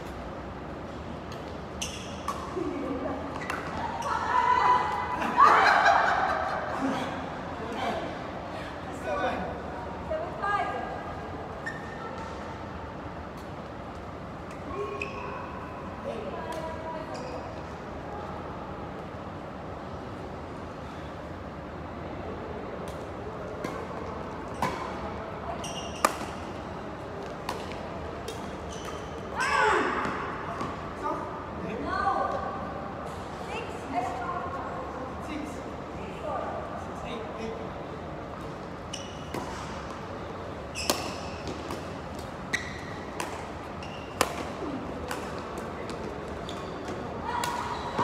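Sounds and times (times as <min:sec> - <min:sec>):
rackets hitting shuttlecock: 0:25.9 - 0:26.6, 0:27.4 - 0:29.2, 0:40.8 - 0:48.0
badminton rackets hitting shuttlecock: 0:40.8 - 0:42.4, 0:43.0 - 0:43.6, 0:44.2 - 0:46.0.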